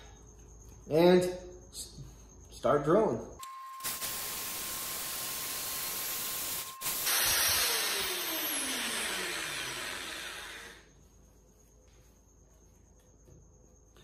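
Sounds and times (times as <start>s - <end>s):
electric drill running: 3.8s - 10.9s.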